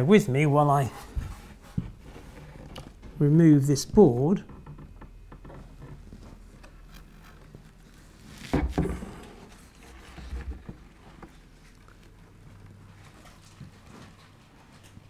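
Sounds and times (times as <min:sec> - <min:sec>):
wooden board knocking and scraping: 0:08.4 - 0:11.3.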